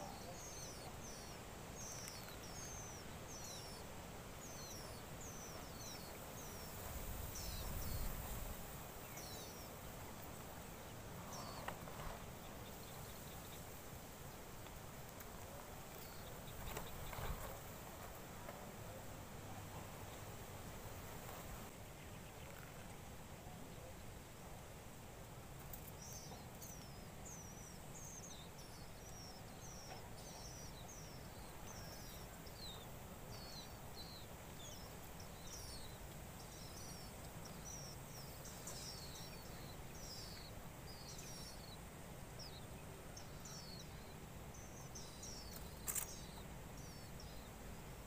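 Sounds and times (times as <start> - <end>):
nestlings cheeping: 42.4 - 47.4.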